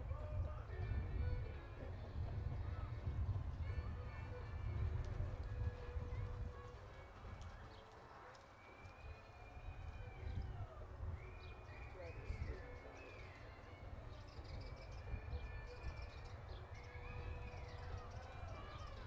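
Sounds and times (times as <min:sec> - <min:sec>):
horse hoofbeats on dirt: 0:00.2 - 0:10.4.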